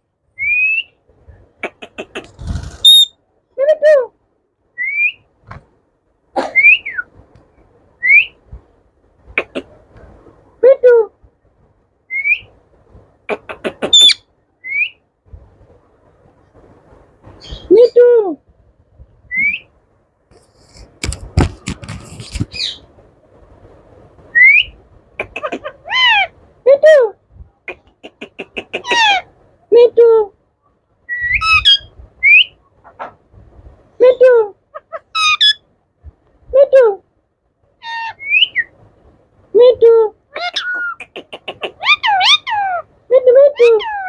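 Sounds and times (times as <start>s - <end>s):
parakeet rising whistles: 2.8s - 3.1s
parakeet chattering notes: 13.3s - 14.2s, 25.2s - 26.3s, 27.7s - 29.3s, 40.4s - 42.8s
parrot squawk: 13.4s - 14.2s, 25.2s - 26.4s, 28.3s - 29.3s, 31.4s - 33.1s, 34.7s - 35.6s, 37.8s - 38.7s, 40.3s - 42.9s, 43.5s - 44.0s.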